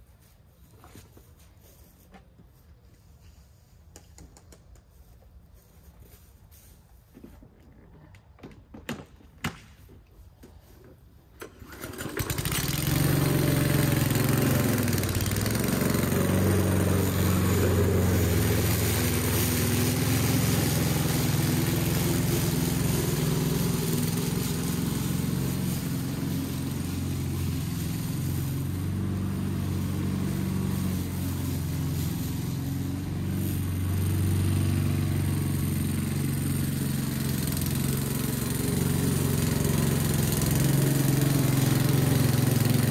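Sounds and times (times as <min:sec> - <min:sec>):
lawn mower engine running: 0:10.3 - 0:42.9.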